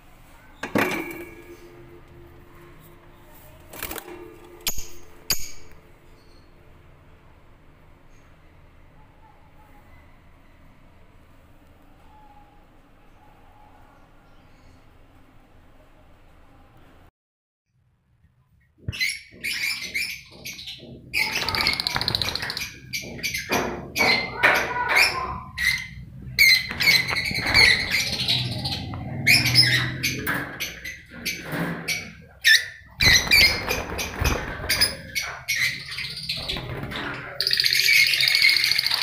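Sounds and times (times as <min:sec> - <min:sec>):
lovebirds chirping and squawking: 0:18.8 - 0:39.0.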